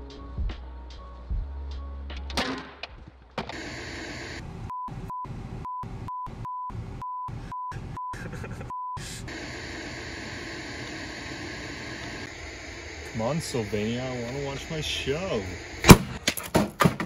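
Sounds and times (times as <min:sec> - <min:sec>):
television static hiss: 0:09.3 - 0:15.9.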